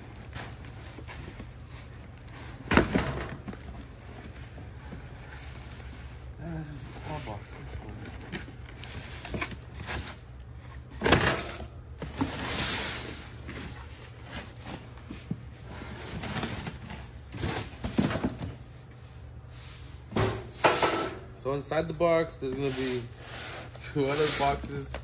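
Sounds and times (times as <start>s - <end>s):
boxes bumping: 0.0s - 5.9s, 7.7s - 18.6s
cardboard rustling and scraping: 0.0s - 20.1s, 22.4s - 25.0s.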